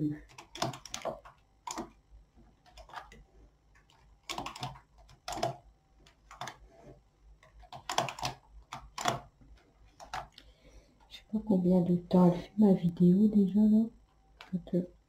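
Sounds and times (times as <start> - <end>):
knitting needles clicking: 0.2 - 2.0, 2.6 - 6.6, 7.4 - 11.1.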